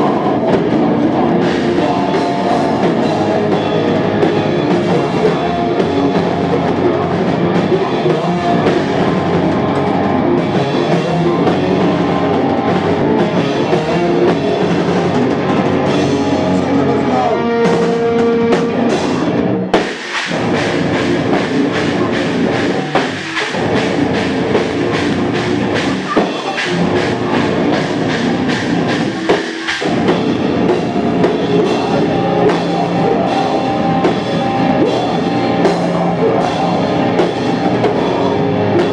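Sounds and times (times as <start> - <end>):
hardcore band playing live: 0.0 - 38.9.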